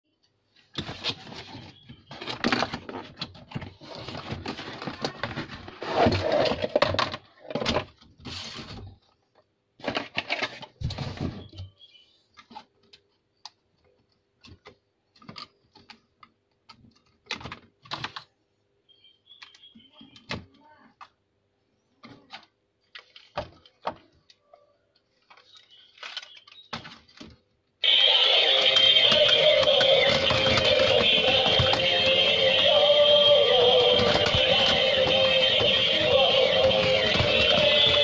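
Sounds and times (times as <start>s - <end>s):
cardboard and packaging rustling: 0.6s - 11.8s, 25.2s - 38.0s.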